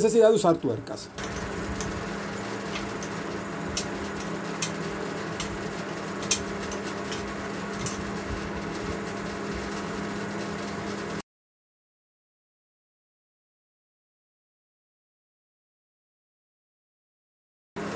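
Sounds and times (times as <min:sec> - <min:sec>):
steady low hum: 0:00.0 - 0:11.2.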